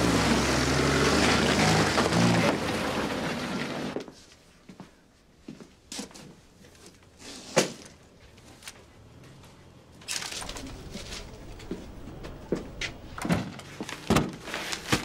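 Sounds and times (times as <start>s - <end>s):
car engine and road noise: 0.0s - 4.0s, 7.8s - 15.0s.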